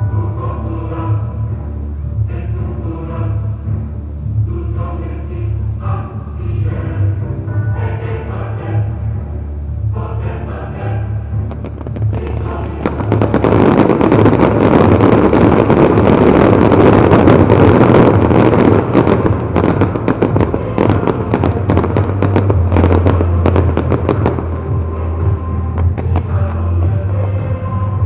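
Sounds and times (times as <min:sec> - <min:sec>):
steady low drone: 0:00.0 - 0:28.0
fireworks crackling and banging: 0:11.4 - 0:28.0.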